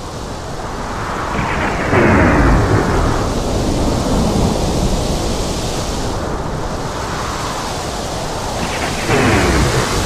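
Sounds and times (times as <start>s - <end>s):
wind and rain rushing: 0.0s - 10.0s
low thunder rumble: 1.2s - 6.0s, 8.6s - 10.0s.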